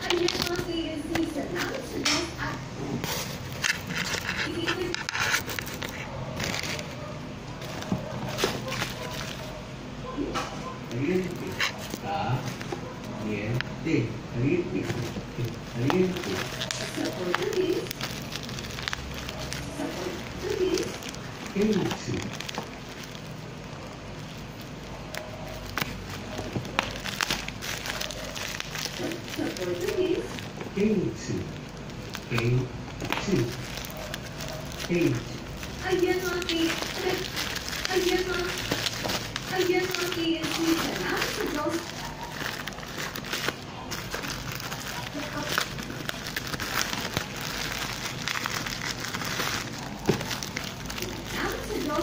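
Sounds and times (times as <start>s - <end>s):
plastic bag crinkling: 0.0s - 2.0s, 3.0s - 9.6s, 10.8s - 13.5s, 14.4s - 52.0s.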